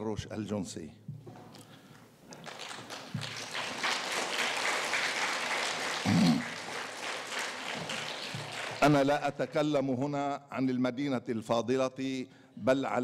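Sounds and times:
audience applauding: 2.3s - 9.4s.

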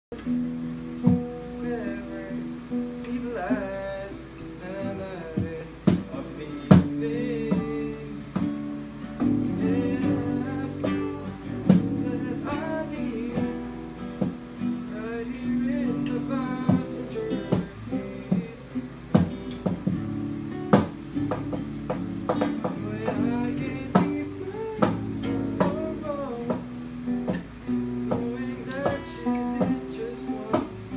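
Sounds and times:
acoustic guitar strumming: 0.1s - 30.9s
person singing: 1.4s - 8.6s, 9.2s - 19.3s, 22.3s - 27.4s, 28.0s - 30.9s
hand slaps on cajon: 5.4s - 7.0s, 11.7s - 12.0s, 19.2s - 20.1s, 20.7s - 23.2s, 24.8s - 25.8s, 26.5s - 27.5s, 30.5s - 30.7s.

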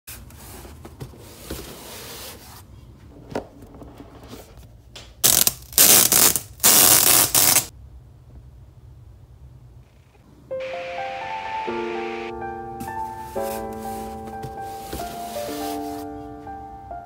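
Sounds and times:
plastic film crinkling as peeled: 5.2s - 7.7s.

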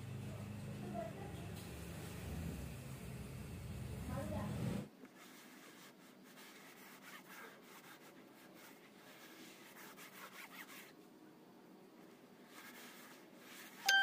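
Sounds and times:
cloth rubbing on plastic: 4.1s - 11.0s, 12.0s - 13.8s.

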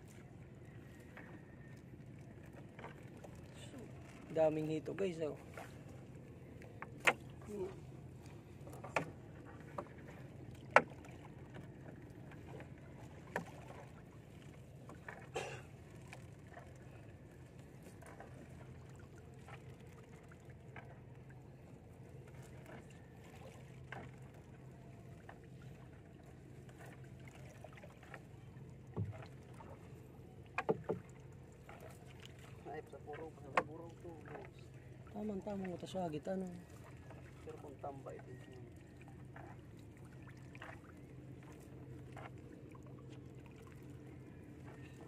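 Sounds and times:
knocks against wooden hull: 6.8s - 7.3s, 8.7s - 10.0s, 28.9s - 29.3s, 30.5s - 31.2s, 33.5s - 33.8s.

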